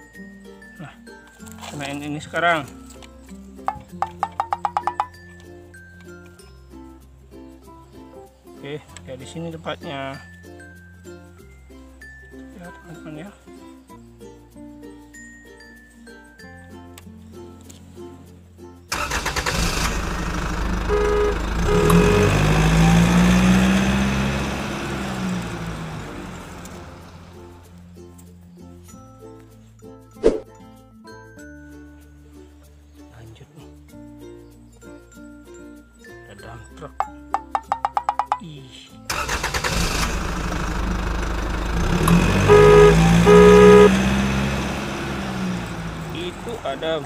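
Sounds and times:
truck engine running and revving: 0:19.0 - 0:27.6, 0:39.3 - 0:47.0
short horn beeps: 0:20.8 - 0:22.6, 0:42.4 - 0:44.1.

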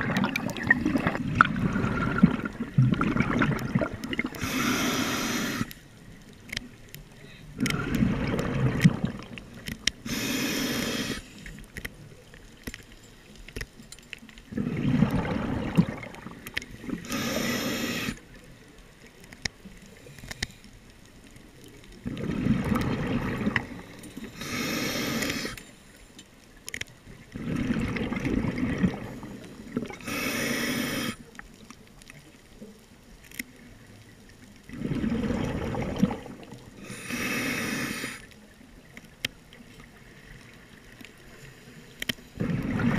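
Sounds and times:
exhaled bubbles rumbling: 0:00.0 - 0:05.6, 0:07.5 - 0:11.2, 0:14.4 - 0:18.0, 0:21.7 - 0:24.0, 0:27.1 - 0:30.1, 0:34.6 - 0:37.0, 0:42.4 - 0:42.9
regulator hissing inhale: 0:04.3 - 0:05.8, 0:10.0 - 0:11.7, 0:17.0 - 0:18.3, 0:23.7 - 0:26.0, 0:29.2 - 0:31.3, 0:36.8 - 0:38.4.

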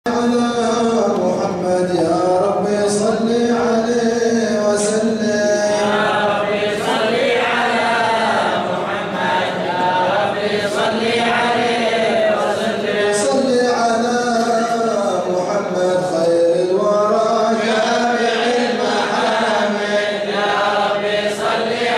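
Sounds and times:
group of men chanting: 0:05.4 - 0:13.5, 0:17.0 - 0:21.9.

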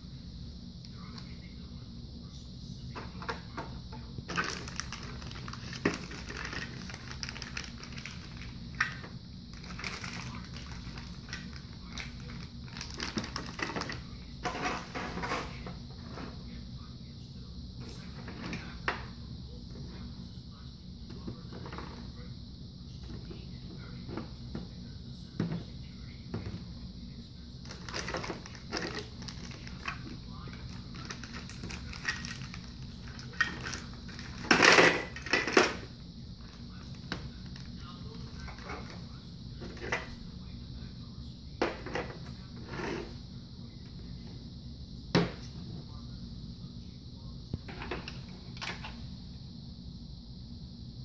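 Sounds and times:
low steady hum: 0:00.0 - 0:51.0
plastic bag crinkling: 0:04.3 - 0:14.0, 0:27.6 - 0:30.1, 0:30.7 - 0:35.5.

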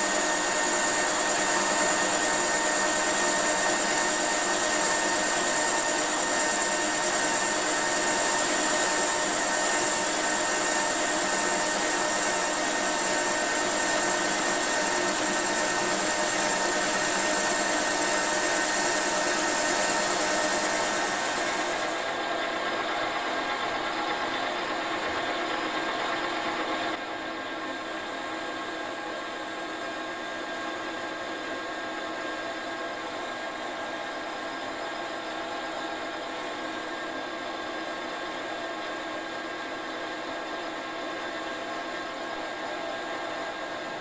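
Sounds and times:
metal lathe whining: 0:00.0 - 0:26.0.

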